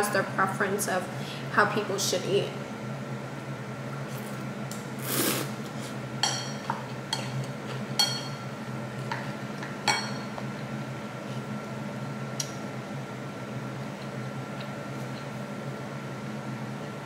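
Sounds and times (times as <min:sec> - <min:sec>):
utensil clinking against bowl: 0:06.2 - 0:08.4, 0:09.9 - 0:10.3.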